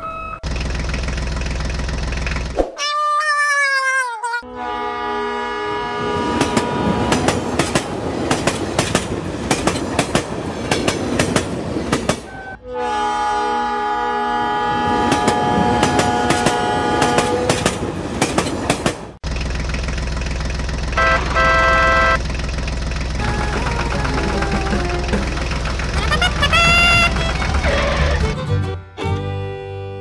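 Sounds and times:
horn-like beep: 0.0 - 0.4, 21.0 - 22.2
low engine drone: 19.2 - 28.6.

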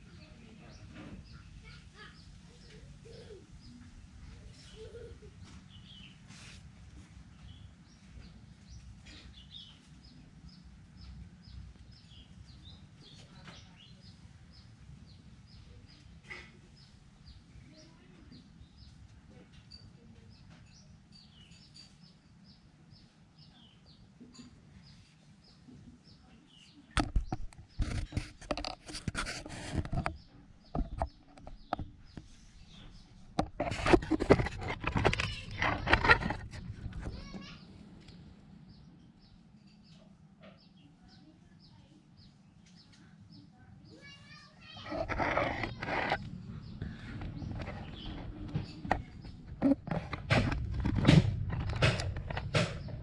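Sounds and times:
small birds chirping: 0.0 - 53.0
loud rustling and scraping: 27.0 - 38.2, 44.6 - 53.0.

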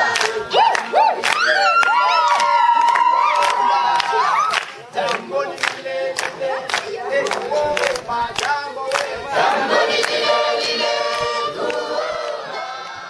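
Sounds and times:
group singing unaccompanied: 0.0 - 1.4, 4.8 - 13.0
hands clapping in rhythm: 0.0 - 13.0.

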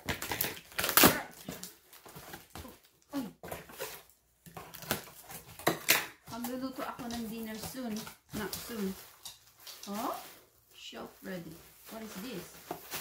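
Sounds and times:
packing tape ripping: 0.0 - 2.6, 3.6 - 6.2.

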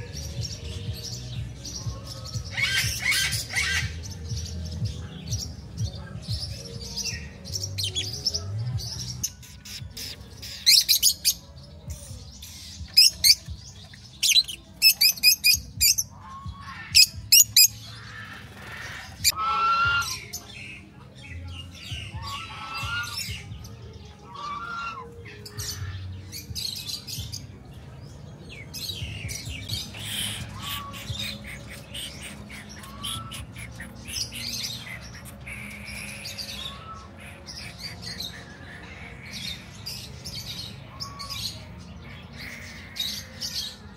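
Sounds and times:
parrots squawking: 14.2 - 20.4, 22.2 - 23.3, 29.8 - 39.8.

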